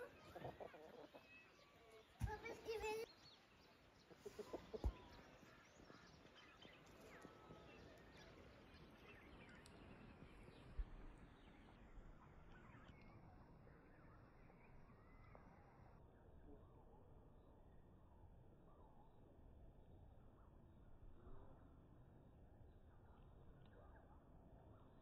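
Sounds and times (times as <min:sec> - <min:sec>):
chickens clucking: 0:00.0 - 0:03.1, 0:04.0 - 0:05.5.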